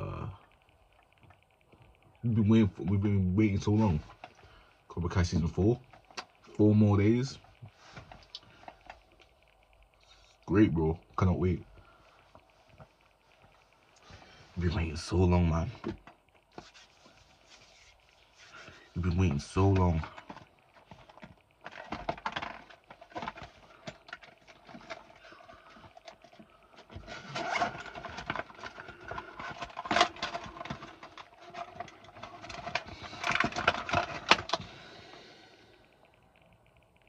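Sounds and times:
rustling: 0:11.8 - 0:35.2.

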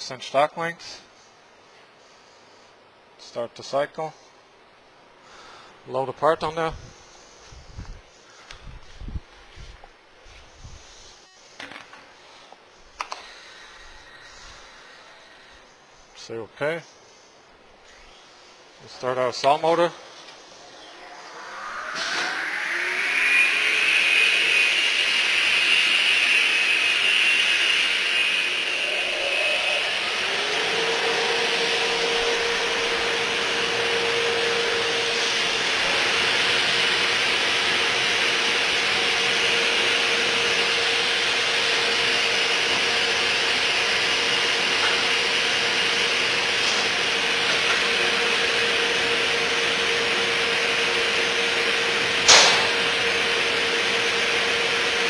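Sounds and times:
saw motor whirring: 0:20.4 - 0:55.0
drilling spindle tone: 0:20.6 - 0:55.0.

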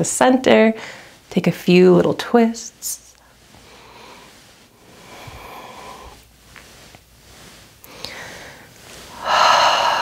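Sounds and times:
person breathing close to microphone: 0:00.8 - 0:01.3, 0:03.2 - 0:10.0.

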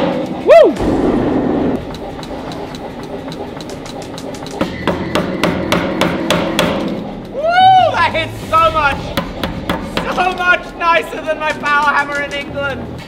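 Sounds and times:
power hammer striking: 0:00.0 - 0:07.4, 0:08.4 - 0:11.6
person whooping: 0:00.4 - 0:00.8, 0:07.3 - 0:08.1.

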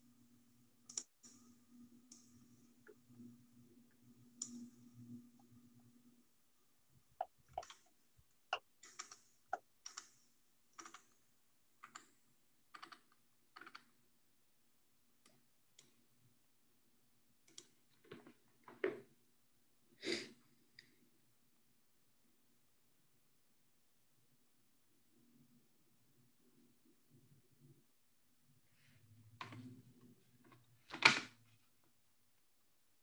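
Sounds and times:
faint low hum: 0:00.0 - 0:33.0
keyboard and mouse clicking: 0:00.8 - 0:01.4, 0:07.2 - 0:11.2, 0:11.8 - 0:13.9, 0:17.4 - 0:17.8.

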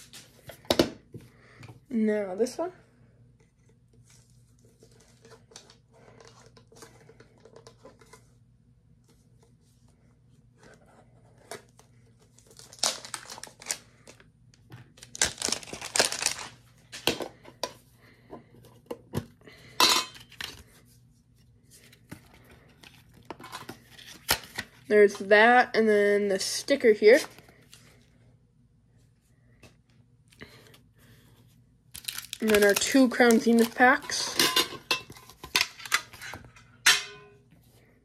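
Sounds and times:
plastic wrap tearing and crinkling: 0:12.4 - 0:14.2, 0:14.9 - 0:16.7, 0:32.0 - 0:34.3.

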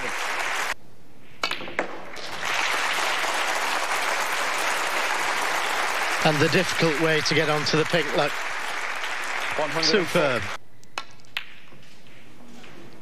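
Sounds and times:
audience applauding: 0:00.0 - 0:00.8, 0:02.1 - 0:10.6.

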